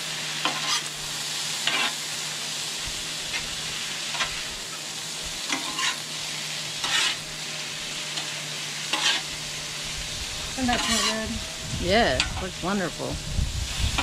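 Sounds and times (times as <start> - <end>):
food sizzling on a griddle: 0.0 - 14.0
metal spatula scraping griddle: 0.4 - 2.1, 3.2 - 4.8, 5.4 - 9.9, 10.6 - 12.5.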